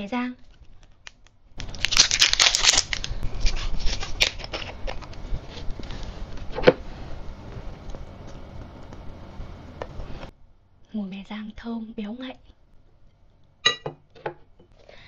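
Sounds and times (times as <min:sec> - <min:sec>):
plastic seal crinkling and tearing: 0:00.4 - 0:05.9
soft crackles and clicks: 0:07.3 - 0:10.3.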